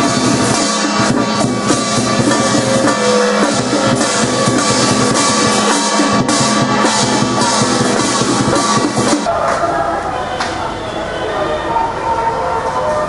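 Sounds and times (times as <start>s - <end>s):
steady drumming: 0.0s - 9.6s
cymbals and gongs clashing: 0.0s - 11.0s.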